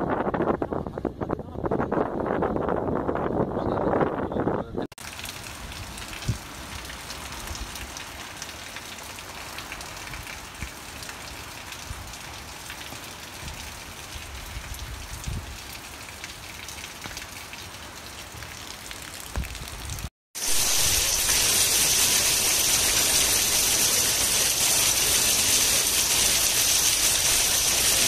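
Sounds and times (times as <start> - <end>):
steady rain falling: 5.0 - 28.0.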